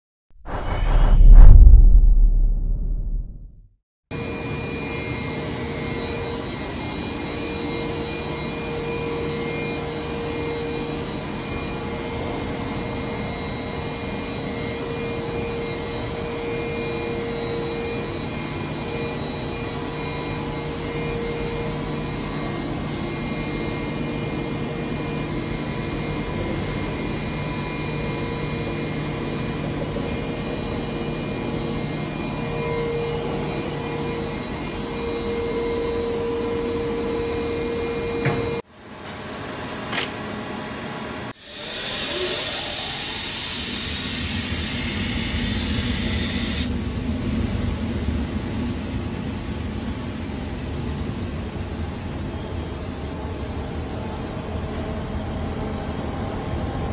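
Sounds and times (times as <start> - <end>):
steady whining tones: 0.5 - 3.6.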